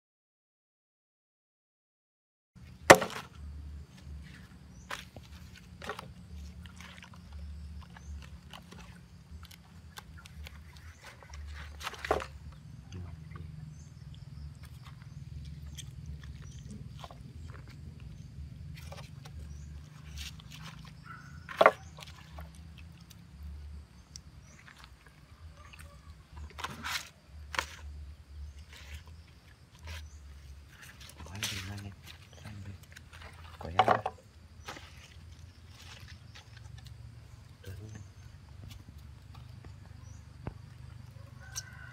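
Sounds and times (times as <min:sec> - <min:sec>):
low steady rumble: 0:02.6 - 0:26.6
machete cutting and scraping fish: 0:02.9 - 0:03.4, 0:04.0 - 0:12.7, 0:14.6 - 0:23.2, 0:24.4 - 0:37.0, 0:41.5 - 0:41.9.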